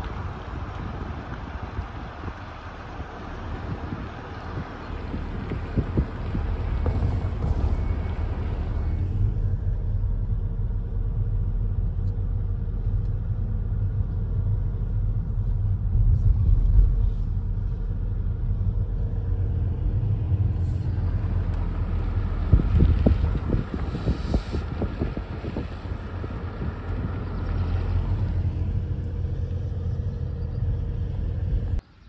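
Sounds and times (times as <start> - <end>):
wind buffeting microphone: 0.0 - 10.1, 15.0 - 31.8
car road and engine rumble: 0.0 - 32.0.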